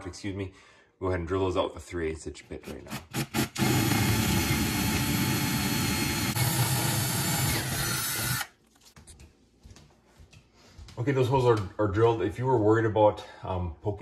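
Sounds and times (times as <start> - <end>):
power drill drilling: 2.9 - 8.6.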